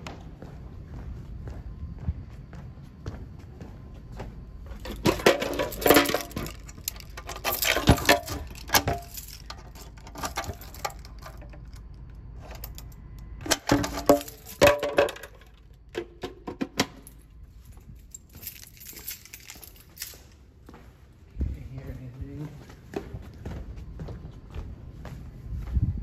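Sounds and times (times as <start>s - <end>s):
keys jangling: 4.8s - 15.6s, 16.8s - 20.5s.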